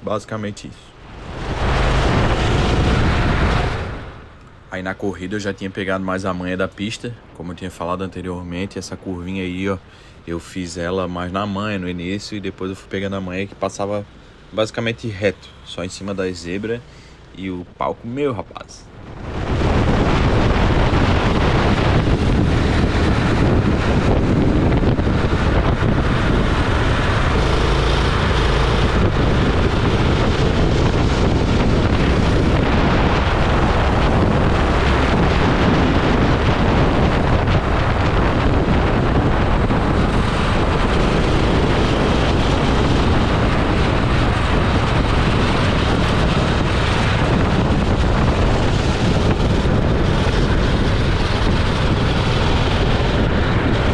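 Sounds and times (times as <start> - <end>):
wind buffeting microphone: 0.0 - 12.5, 17.7 - 53.9
go-kart engine racing: 1.0 - 4.3, 19.3 - 53.9.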